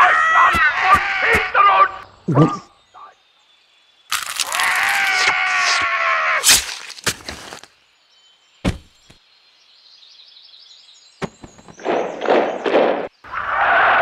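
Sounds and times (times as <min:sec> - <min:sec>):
sharp crack: 0:06.4 - 0:07.6.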